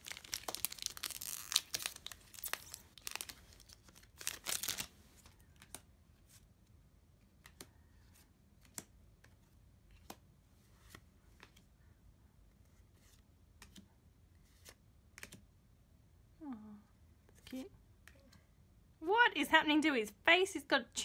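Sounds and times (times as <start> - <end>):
foil pack tearing and crinkling: 0.0 - 4.9
cards clicking and tapping: 4.4 - 5.9, 7.2 - 11.7, 13.5 - 13.9, 14.5 - 15.5.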